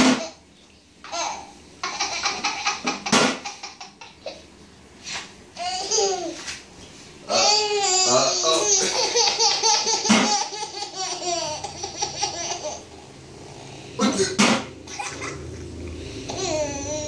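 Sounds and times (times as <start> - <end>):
toddler laughing: 1.1 - 4.5, 5.6 - 6.4, 7.3 - 13.0, 16.3 - 17.0.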